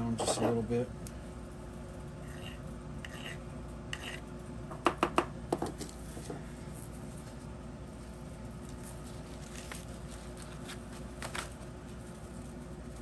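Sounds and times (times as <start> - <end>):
file rasping on metal: 2.2 - 4.2.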